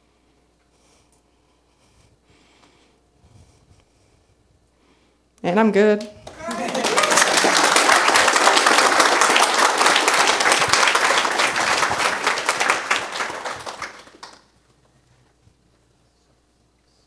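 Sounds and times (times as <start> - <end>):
audience applause: 6.2 - 14.5.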